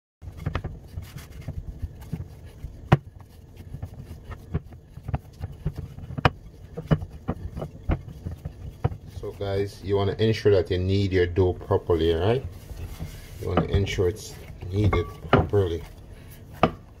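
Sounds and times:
dough thudding in glass bowl: 0.2 - 10.1, 13.4 - 15.9
rubbing and scraping: 0.2 - 17.0
bowl shifting on wooden board: 12.4 - 17.0.

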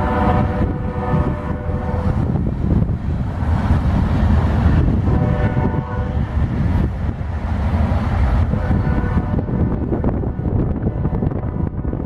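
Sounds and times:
train air horn blast: 0.0 - 2.2, 5.0 - 6.2, 8.5 - 9.6
diesel locomotive rumbling past: 0.0 - 12.0.

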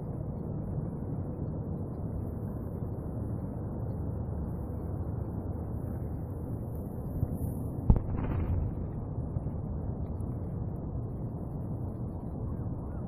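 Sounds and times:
wind noise on microphone: 7.0 - 13.0.

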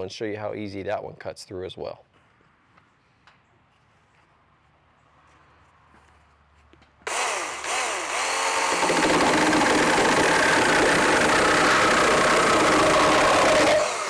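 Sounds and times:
chainsaw cutting wood: 7.0 - 14.0
electric chainsaw motor whine: 7.1 - 14.0.

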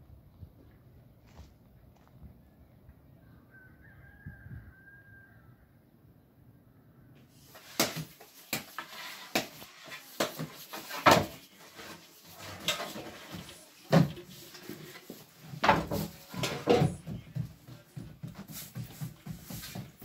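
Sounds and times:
faint bird call: 3.1 - 5.8.

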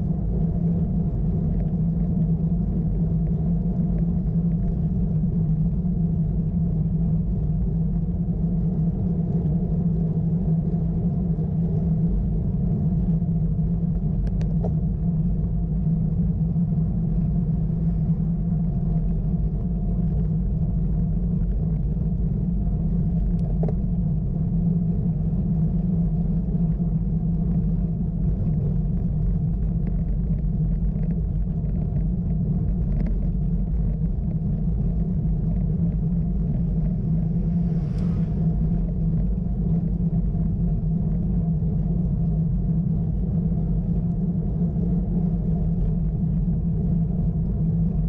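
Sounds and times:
wind on microphone: 0.0 - 48.0
bicycle tyre noise: 27.5 - 40.9.

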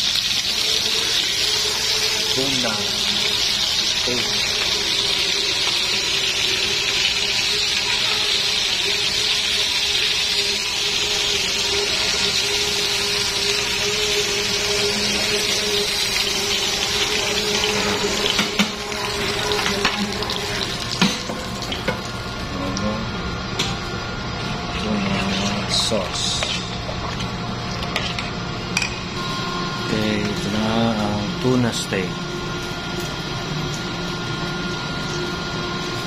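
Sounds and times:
fish sizzling in hot oil: 0.0 - 22.5.

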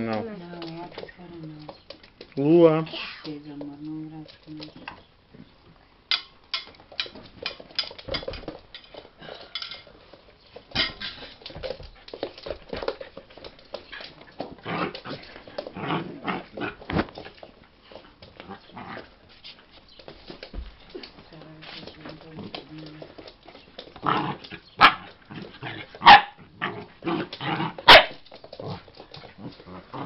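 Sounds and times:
dog claws clicking on wooden floor: 0.0 - 2.6, 6.1 - 30.0.

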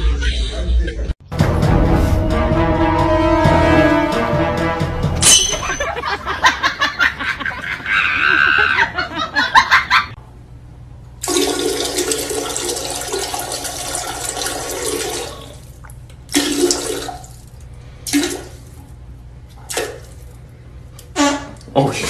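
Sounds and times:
toilet flushing: 11.2 - 18.9.

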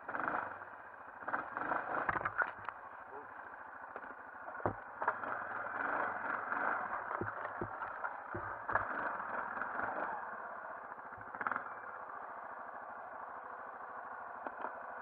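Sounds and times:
atv engine running: 0.0 - 15.0
knocks and clatters through brush: 1.9 - 2.9, 3.9 - 9.9.

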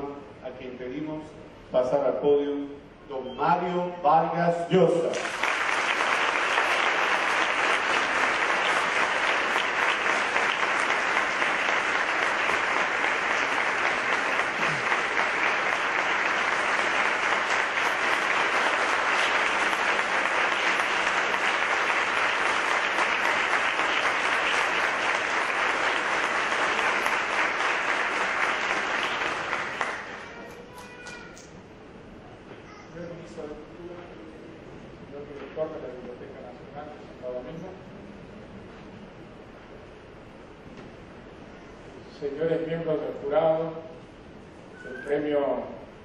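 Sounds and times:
audience applauding: 5.0 - 31.3.

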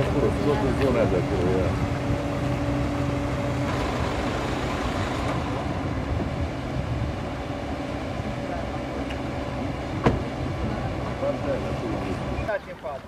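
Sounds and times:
engine low hum: 0.0 - 13.0
paddle wheel churning water: 7.2 - 13.0.

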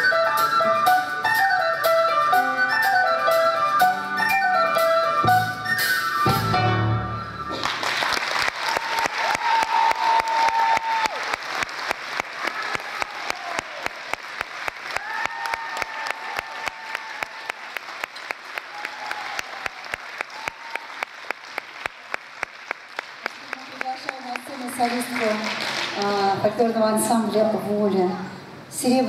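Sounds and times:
audience rhythmic clapping: 7.5 - 26.2.

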